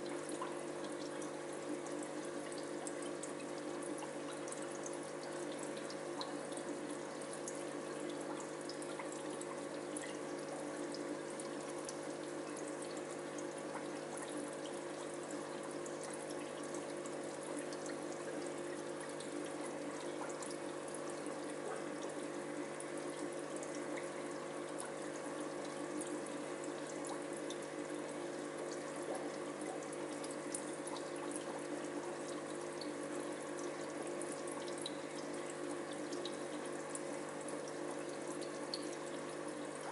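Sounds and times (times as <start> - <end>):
aquarium water trickling and bubbling: 0.0 - 39.9
low steady hum: 0.0 - 39.9
small splashy ticks: 34.4 - 39.9.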